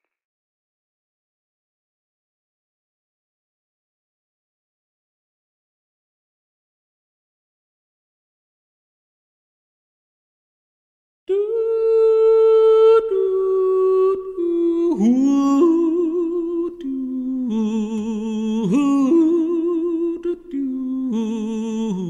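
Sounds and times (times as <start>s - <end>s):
person humming a slow melody: 11.3s - 22.0s.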